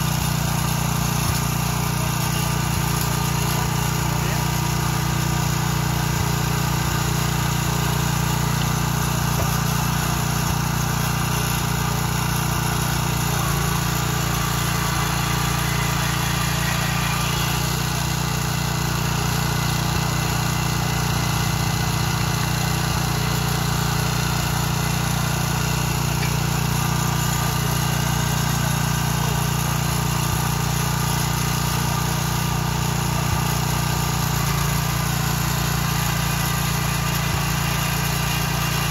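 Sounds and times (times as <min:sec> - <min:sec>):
small petrol engine running: 0:00.0 - 0:38.9.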